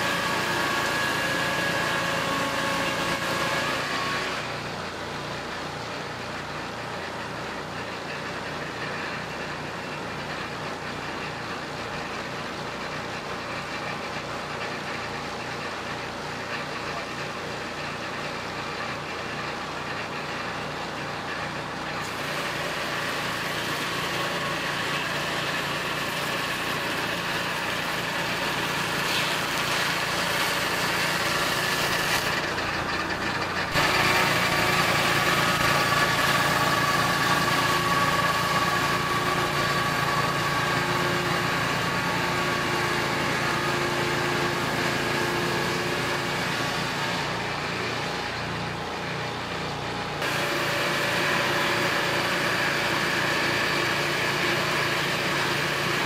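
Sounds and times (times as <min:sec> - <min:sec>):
sawmill engine running: 0:00.0 - 0:56.0
circular saw blade spinning: 0:22.3 - 0:47.4.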